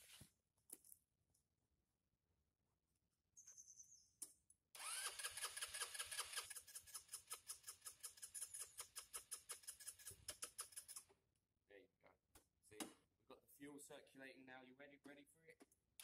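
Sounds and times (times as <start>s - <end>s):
scooter starter cranking engine: 4.8s - 11.0s.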